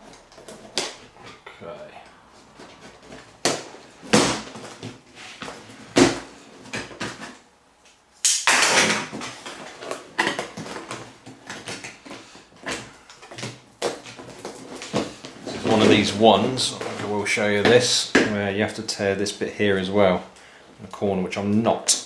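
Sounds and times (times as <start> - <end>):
cardboard box scraping: 4.9 - 6.7, 14.5 - 17.1.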